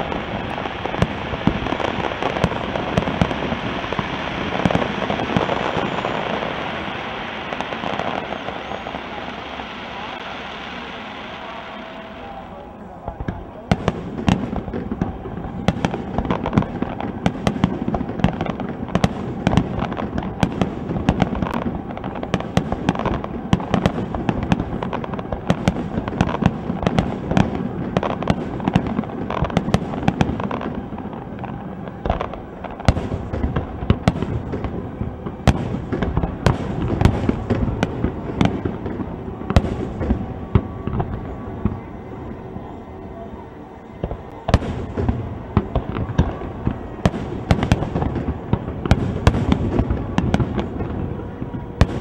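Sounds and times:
fireworks bangs and crackling: 0.0 - 52.0.

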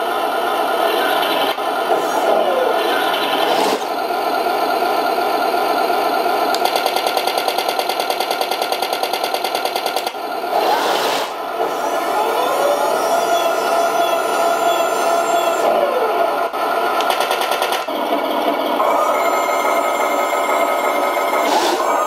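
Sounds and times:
tank engine sound from small speaker: 0.0 - 6.6, 10.5 - 17.0
motor whir: 0.9 - 4.1, 10.5 - 16.2, 18.8 - 22.0.

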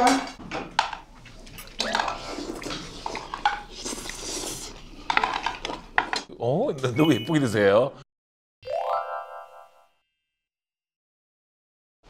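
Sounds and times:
utensils clicking against bowls: 0.0 - 3.7
wet chewing: 1.2 - 6.1.

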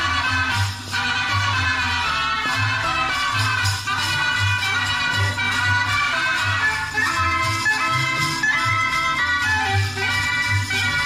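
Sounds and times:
instrumental folk music: 0.0 - 11.0.

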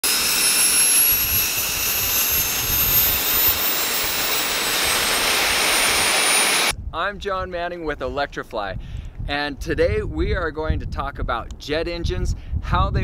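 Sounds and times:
turbojet engine running: 0.0 - 6.7.

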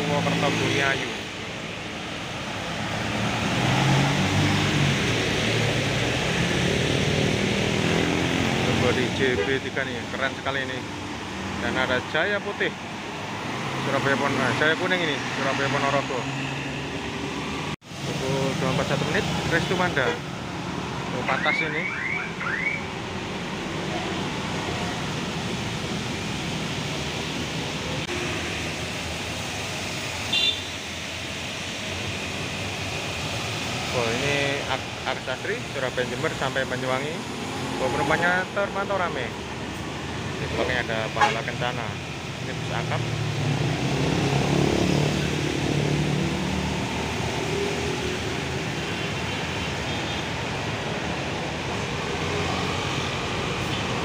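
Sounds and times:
traffic on a wet road: 0.0 - 54.0
coach diesel engine passing: 23.0 - 49.0.

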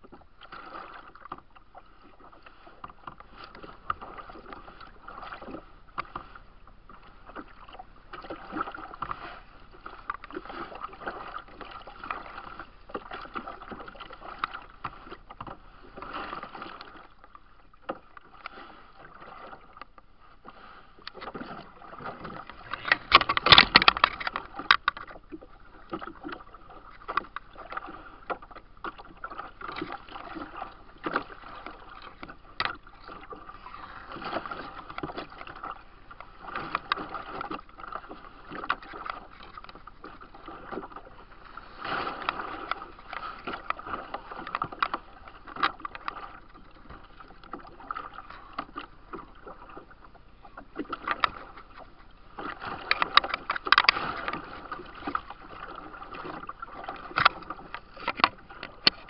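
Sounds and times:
water lapping against kayak hull: 0.0 - 59.0
water rush: 21.6 - 25.1, 31.0 - 37.2.

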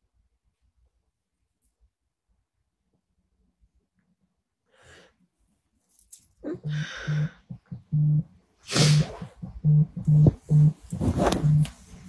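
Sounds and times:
phone vibrating buzzes: 6.7 - 8.3, 8.9 - 11.7.

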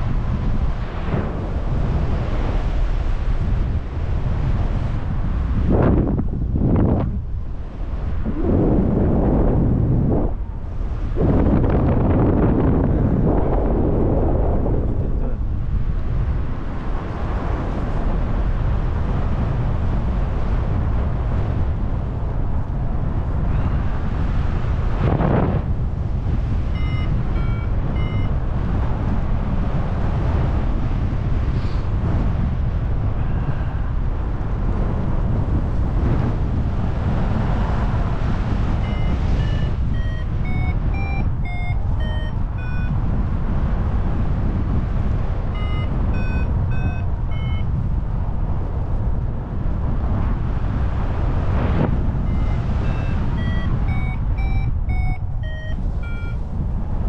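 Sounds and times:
airflow rushing over microphone: 0.0 - 57.0
variometer electronic beeps: 26.6 - 28.5, 38.6 - 43.1, 45.5 - 47.8, 52.2 - 56.5.

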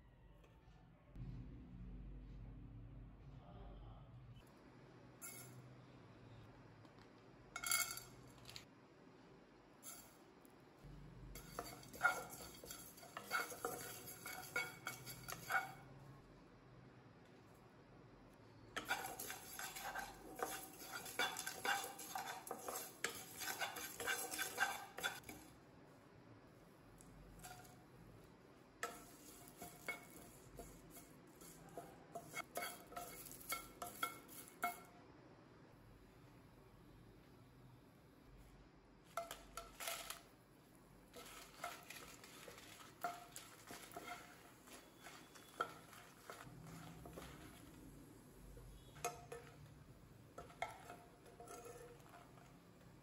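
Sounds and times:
wooden spatula scraping a pan: 11.4 - 15.8, 18.8 - 25.5, 28.8 - 34.8, 41.1 - 47.9, 50.3 - 52.6
seeds rattling in a pan: 39.6 - 40.3.

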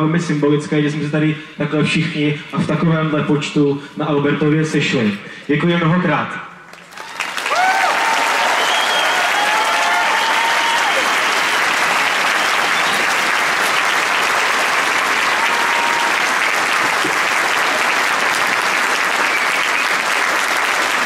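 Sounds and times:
crowd cheering: 6.7 - 21.0
large crowd applauding: 6.7 - 21.0.

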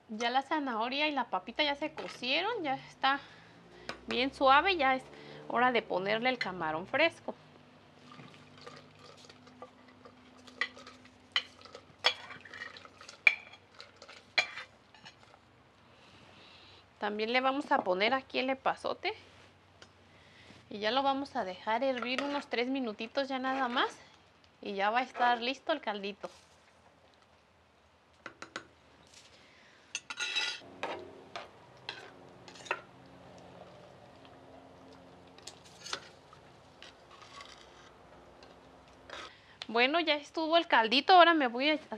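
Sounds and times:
metal spoon scraping clay pot: 8.2 - 15.4, 21.8 - 22.6, 23.4 - 24.1, 30.0 - 32.9, 35.4 - 38.0, 39.0 - 39.3.

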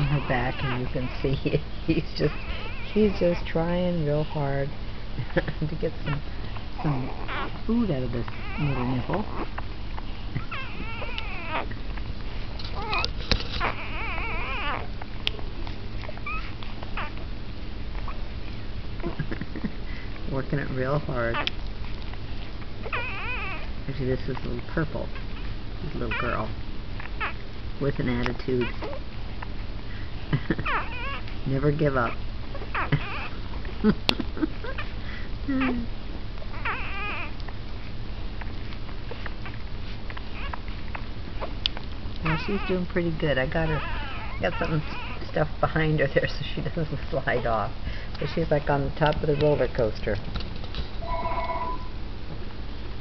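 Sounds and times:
puppy whining: 0.0 - 50.1, 50.9 - 52.6.

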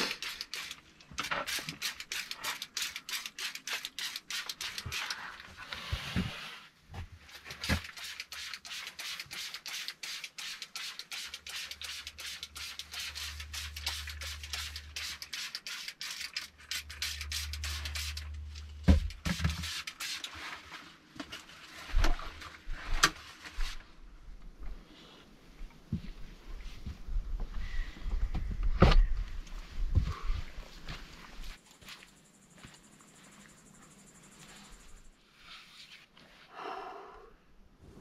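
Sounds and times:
spray bottle squirting: 0.0 - 5.2, 7.6 - 18.4, 19.0 - 20.3.

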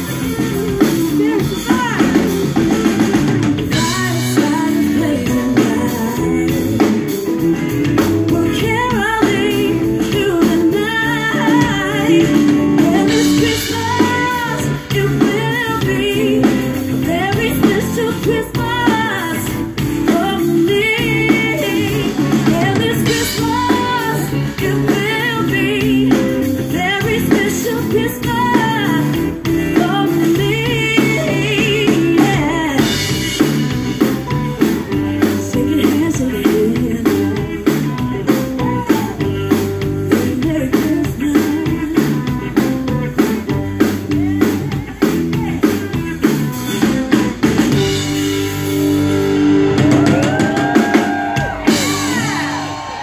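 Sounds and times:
drum kit: 0.0 - 53.0
electric guitars: 0.0 - 53.0
woman singing lead: 0.0 - 53.0.

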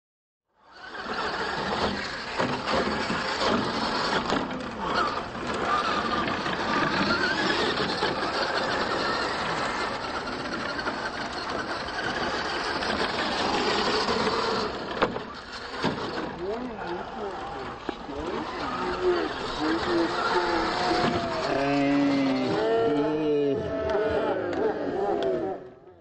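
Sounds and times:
toy truck motors whining: 0.6 - 26.0.

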